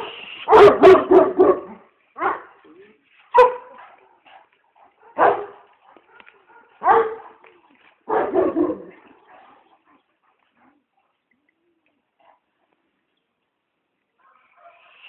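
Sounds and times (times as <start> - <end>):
dog barking: 0.5 - 2.6, 3.3 - 7.4, 8.1 - 9.6, 14.2 - 15.0.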